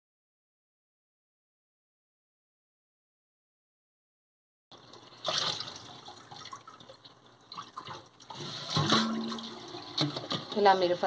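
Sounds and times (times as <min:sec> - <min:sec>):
tap water running: 0:04.7 - 0:11.0
water splashing into a bowl: 0:05.0 - 0:10.6.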